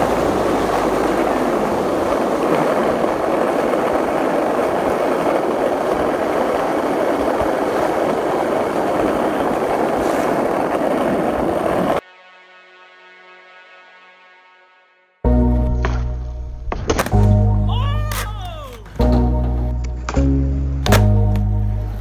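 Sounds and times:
skateboard wheels rolling on asphalt: 0.0s - 12.1s, 18.8s - 22.0s.

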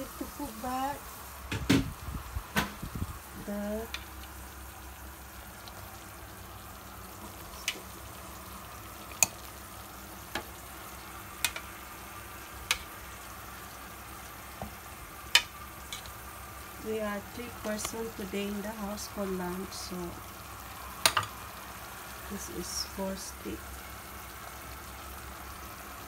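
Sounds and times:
sauce bubbling and sizzling in a pan: 0.0s - 26.0s
tongs clicking against a pan: 9.1s - 9.5s, 11.4s - 11.7s, 12.6s - 13.0s, 15.3s - 16.2s, 21.0s - 21.3s.

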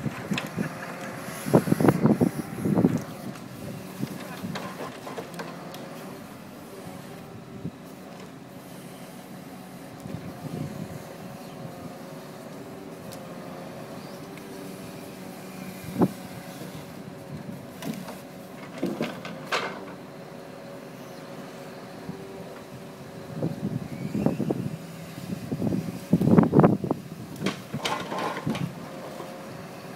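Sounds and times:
crane engine and hydraulics running: 0.0s - 29.9s
wooden knocks of logs: 17.8s - 20.0s, 27.4s - 28.7s.

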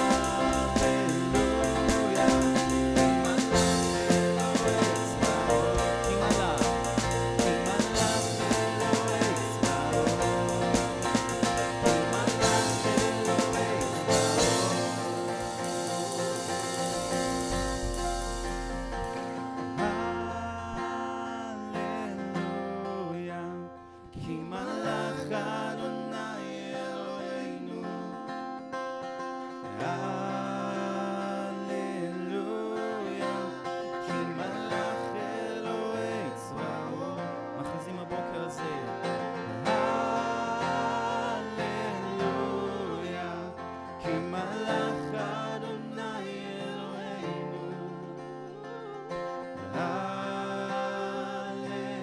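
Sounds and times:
electronic drum kit: 0.0s - 19.4s
bass guitar: 0.0s - 21.1s
strummed acoustic guitar: 0.0s - 52.0s.

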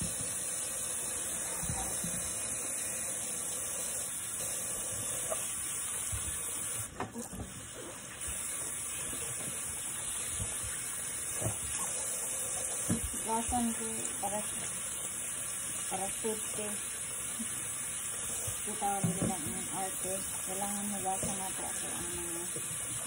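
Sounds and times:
tap running into a sink: 8.2s - 14.8s, 18.3s - 21.8s.

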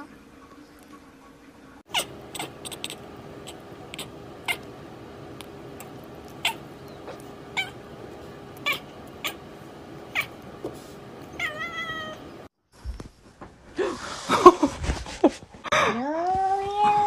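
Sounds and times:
cat meowing: 1.9s - 4.7s, 5.8s - 6.7s, 7.6s - 7.8s, 8.6s - 9.4s, 10.1s - 10.4s, 11.3s - 12.2s
cat chirping: 1.9s - 7.9s, 8.5s - 10.5s, 11.2s - 12.5s.

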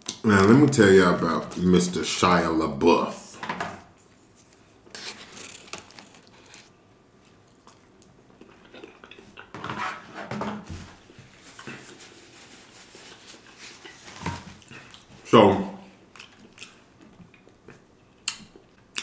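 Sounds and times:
person chewing food: 5.5s - 9.6s, 12.9s - 15.2s, 16.0s - 19.0s
lip smacking: 16.1s - 19.0s.

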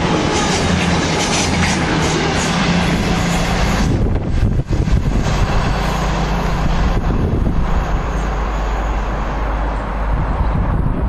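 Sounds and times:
train passing at speed: 0.0s - 11.0s
wheel and rail noise: 0.0s - 11.0s.

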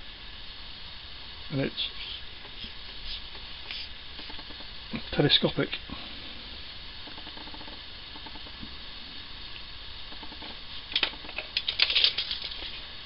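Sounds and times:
low room hiss: 0.0s - 13.0s
small hard objects clicking: 10.1s - 12.8s.

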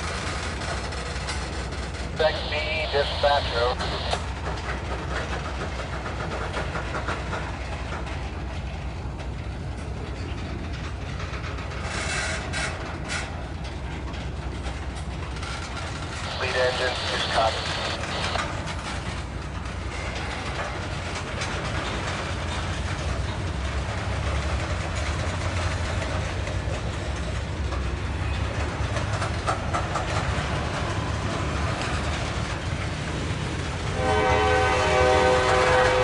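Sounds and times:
train wheels rumbling on rail: 0.0s - 36.0s
train horn chord: 34.0s - 36.0s.

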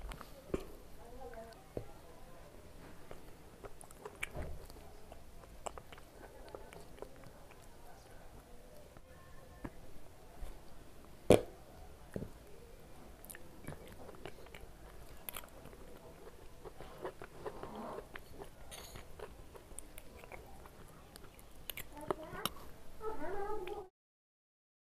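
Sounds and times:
person chewing food: 2.9s - 8.0s, 11.3s - 22.8s
wet mouth clicks: 5.4s - 7.7s, 13.2s - 22.6s.

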